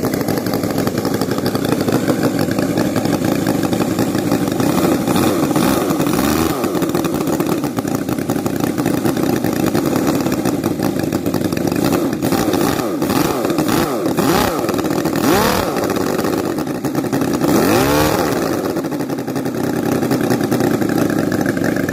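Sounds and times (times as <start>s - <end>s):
model engine revving: 0.0s - 21.9s.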